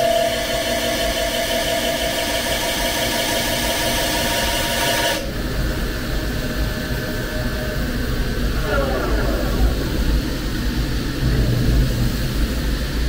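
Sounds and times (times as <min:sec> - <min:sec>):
lathe spindle rumbling: 0:07.9 - 0:12.8.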